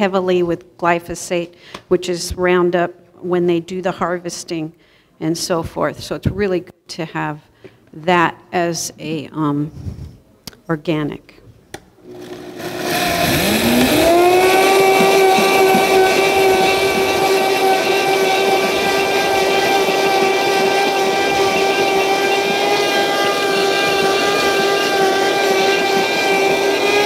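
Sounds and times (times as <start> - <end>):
blender motor whining: 12.0 - 27.0.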